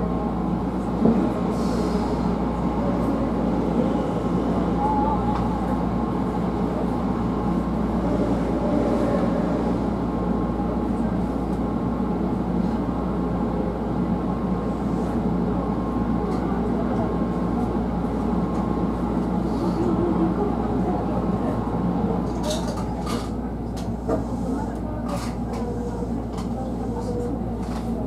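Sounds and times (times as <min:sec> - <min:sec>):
faint train whine: 0:00.0 - 0:22.2.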